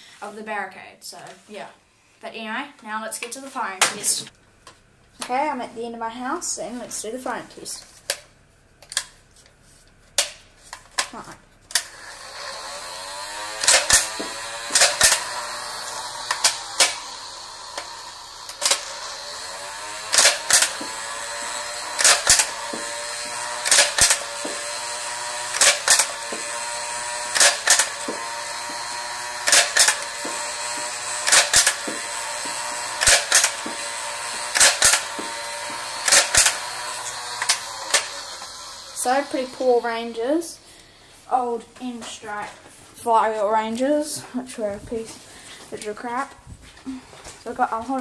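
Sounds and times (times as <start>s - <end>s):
toy blaster trigger double click: 11.7s - 19.1s, 20.1s - 21.1s, 21.8s - 28.5s, 29.2s - 38.6s
flywheel motors whirring: 11.7s - 40.2s.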